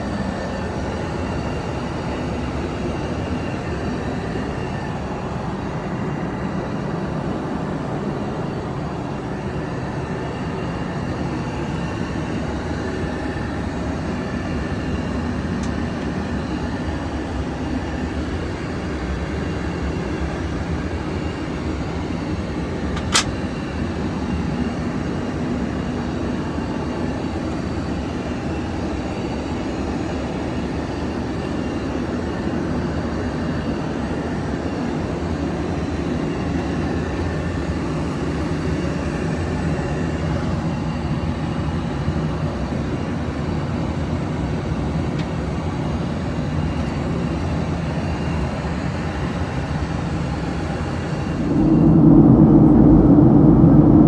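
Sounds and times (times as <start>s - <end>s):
airplane cabin drone: 0.0s - 54.0s
sharp click: 23.0s - 23.4s.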